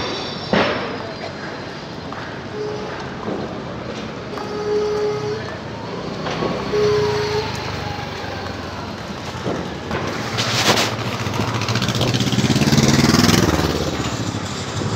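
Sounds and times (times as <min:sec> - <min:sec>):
vehicle engines running: 0:00.0 - 0:14.9
vehicle passing close: 0:05.7 - 0:14.9.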